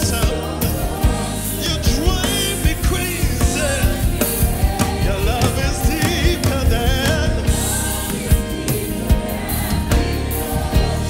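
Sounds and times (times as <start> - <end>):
gospel band playing: 0.0 - 11.0
singers singing: 0.0 - 11.0
steady drum beat: 0.0 - 11.0.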